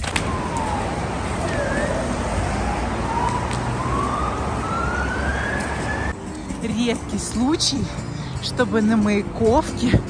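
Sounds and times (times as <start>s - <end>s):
siren wailing: 0.0s - 6.1s
rushing street noise: 0.0s - 10.0s.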